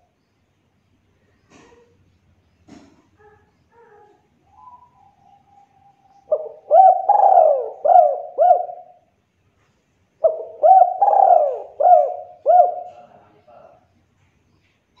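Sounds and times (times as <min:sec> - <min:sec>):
dove cooing: 0:03.2 - 0:09.0, 0:10.2 - 0:13.4.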